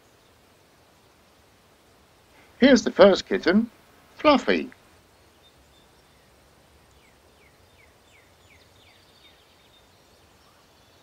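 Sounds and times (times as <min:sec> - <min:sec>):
faint outdoor ambience: 0:00.0 - 0:11.0.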